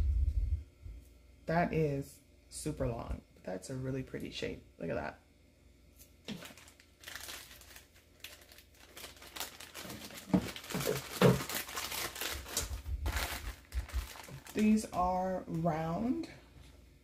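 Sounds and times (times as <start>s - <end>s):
plastic bags crinkling: 6.2s - 16.1s.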